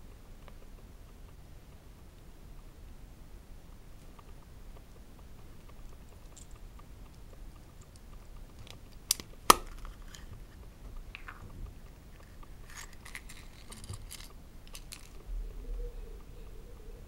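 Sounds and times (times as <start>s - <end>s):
plastic toy clicks: 7.9s - 10.3s, 12.6s - 15.2s.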